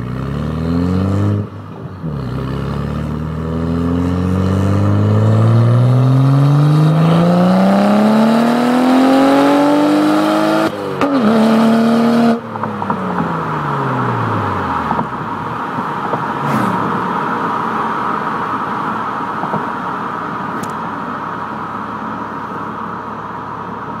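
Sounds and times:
car engine accelerating: 0.0s - 20.7s
steady rushing noise: 15.1s - 20.8s.

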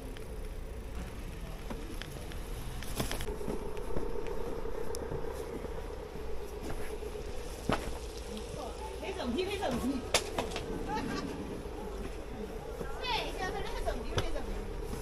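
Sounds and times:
scattered clicks: 0.0s - 5.1s
low rumble: 0.0s - 15.0s
steady mechanical hum: 0.0s - 15.0s.

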